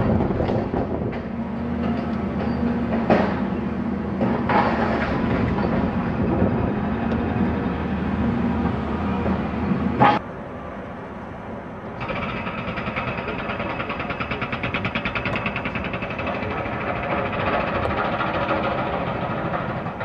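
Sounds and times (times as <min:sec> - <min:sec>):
rapid mechanical clattering: 0:12.0 - 0:20.0.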